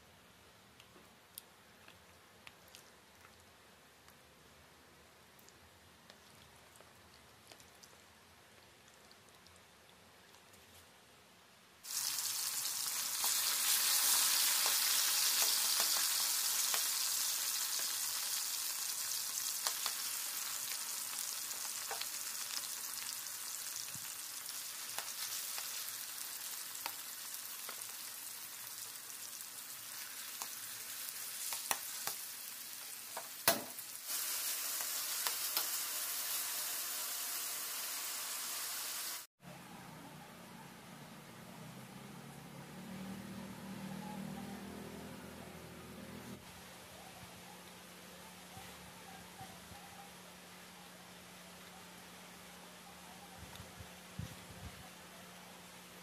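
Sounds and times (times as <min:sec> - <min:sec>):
chicken sizzling in hot oil: 0:11.8 - 0:39.3
sharp knock: 0:33.4 - 0:33.8.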